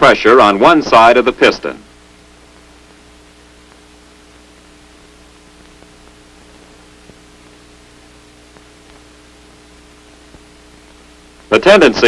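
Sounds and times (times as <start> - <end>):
film soundtrack hiss and hum: 0.0 - 12.0
faint clicks: 3.6 - 3.9, 5.3 - 7.6, 8.5 - 11.5.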